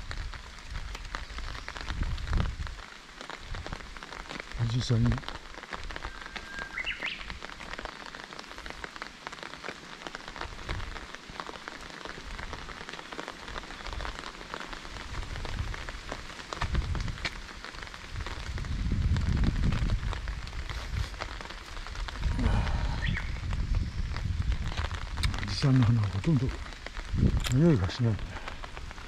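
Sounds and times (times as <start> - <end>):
rain pattering: 0.0 - 29.0.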